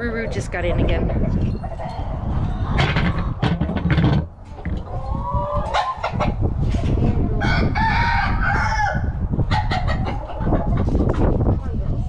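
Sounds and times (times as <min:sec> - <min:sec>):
rustles and knocks: 0:02.8 - 0:04.9
rooster crowing: 0:07.4 - 0:09.2.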